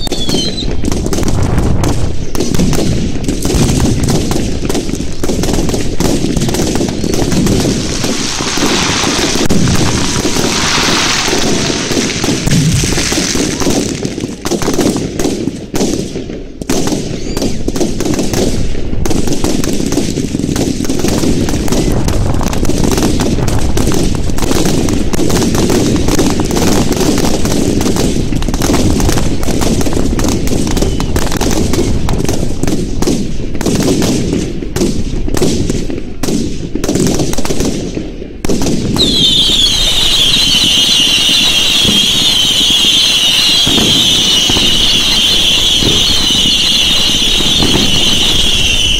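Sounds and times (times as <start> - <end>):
fireworks crackling and banging: 0.0 - 48.9
whistling fireworks: 0.0 - 48.9.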